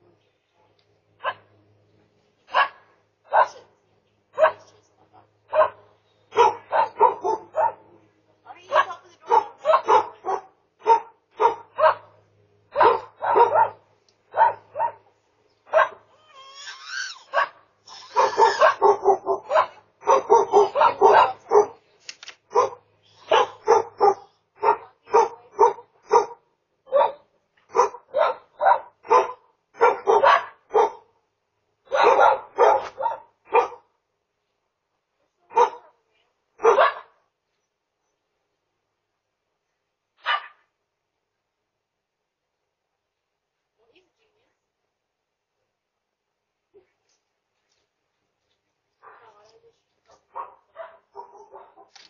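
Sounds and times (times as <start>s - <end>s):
dog barking: 1.2s - 1.5s, 2.5s - 3.7s, 4.4s - 4.8s, 5.5s - 7.9s, 8.7s - 15.1s, 15.7s - 16.2s, 17.2s - 21.8s, 22.5s - 31.1s, 31.9s - 33.9s, 35.5s - 35.9s, 36.6s - 37.2s, 40.2s - 40.7s, 49.0s - 49.4s, 50.2s - 52.0s
dog high wavering cry: 16.1s - 21.7s.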